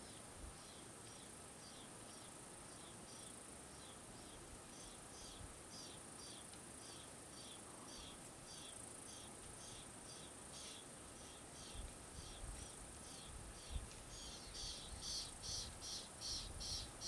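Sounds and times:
steady high hiss: 0.0s - 17.0s
nestlings begging calls: 14.2s - 17.0s.

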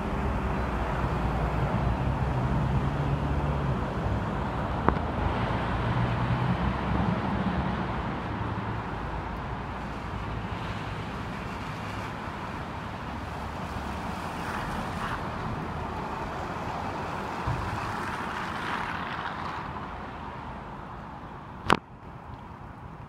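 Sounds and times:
tyres hissing on wet asphalt: 9.6s - 20.6s.

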